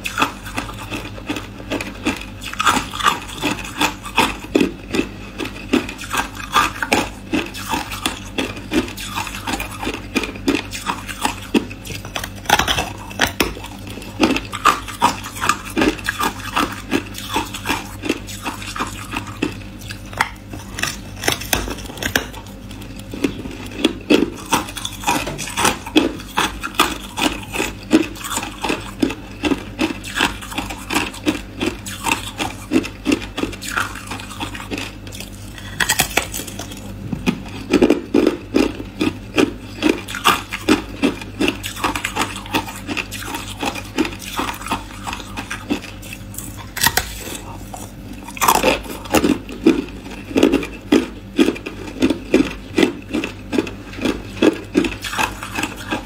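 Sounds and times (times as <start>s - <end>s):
ice crunching and clicking: 41.4s - 47.5s.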